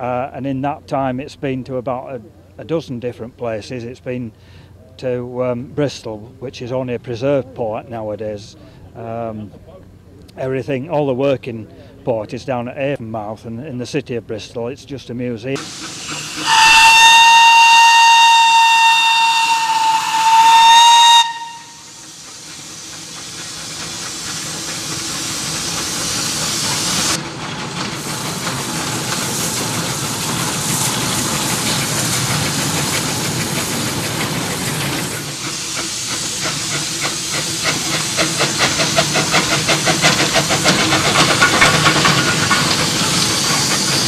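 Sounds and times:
steam engine hissing: 15.5 - 44.0
locomotive chuffing beat: 15.6 - 44.0
locomotive whistle blast: 16.1 - 22.1.

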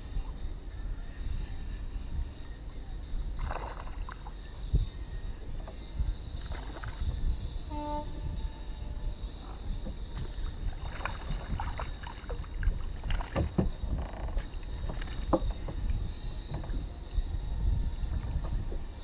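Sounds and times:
water lapping around kayak: 0.0 - 19.0
wind on microphone: 0.0 - 19.0
small splashes: 3.4 - 4.3, 10.2 - 13.5.

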